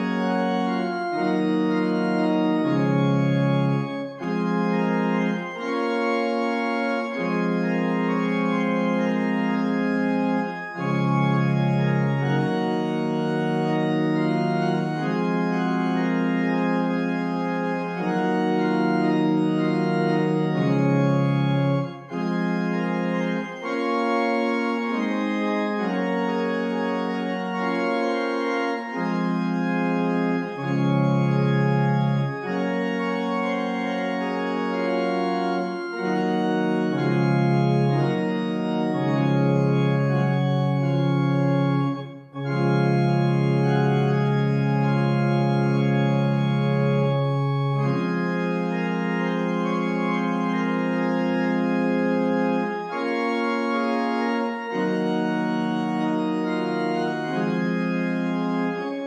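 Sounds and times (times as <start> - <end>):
organ playing held chords: 0.0 - 59.0.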